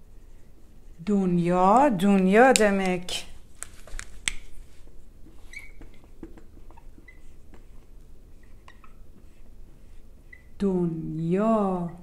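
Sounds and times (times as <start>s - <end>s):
marker clicks and taps: 1.7s - 3.0s, 3.6s - 4.5s
marker squeaking on whiteboard: 5.2s - 10.6s.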